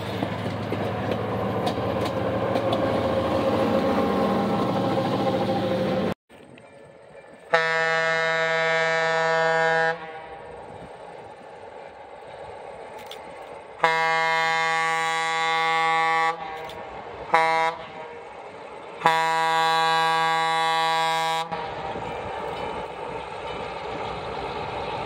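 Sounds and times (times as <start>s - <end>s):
locomotive engine running: 0.0s - 25.0s
locomotive air horn blasts: 7.5s - 10.4s, 13.8s - 16.7s, 17.3s - 18.2s, 19.0s - 22.0s.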